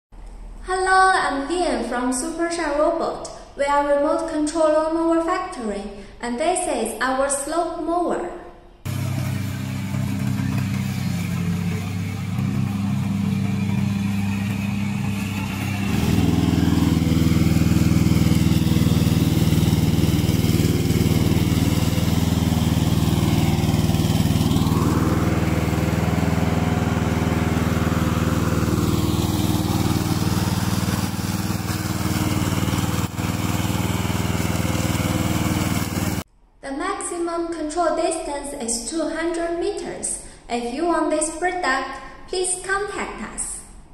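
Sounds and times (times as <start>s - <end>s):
mower engine running under load: 8.9s - 36.3s.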